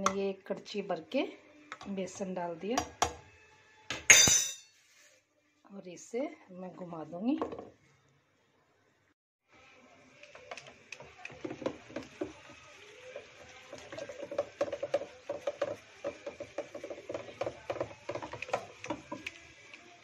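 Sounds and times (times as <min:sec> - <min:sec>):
wooden churner knocking on steel: 0:13.8 - 0:19.3.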